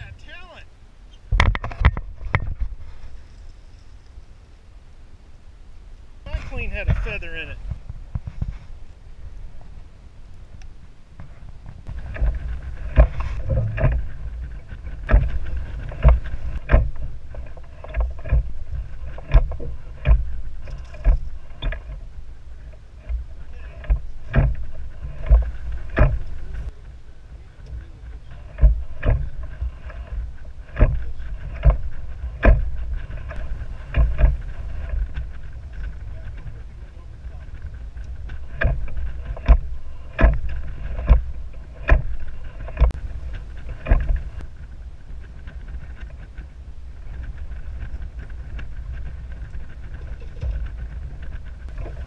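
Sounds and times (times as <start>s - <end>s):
steady low rumble: 0.0s - 52.0s
water slapping against boat hull: 11.2s - 26.8s, 27.7s - 44.5s.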